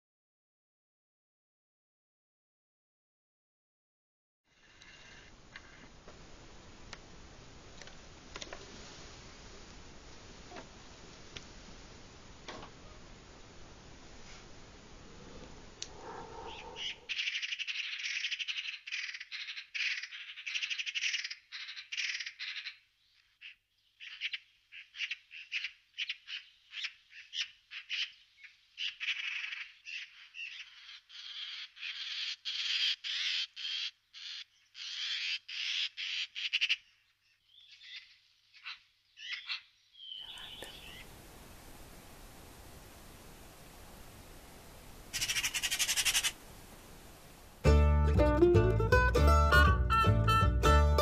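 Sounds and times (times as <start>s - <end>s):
magpie chattering: 16.5s - 22.8s, 23.4s - 36.9s, 45.2s - 46.4s.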